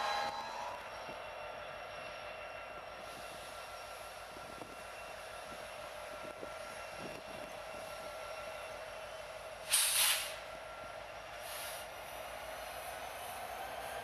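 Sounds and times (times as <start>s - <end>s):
diesel locomotive hum and whine: 0.0s - 14.0s
air blast hiss: 9.6s - 10.4s.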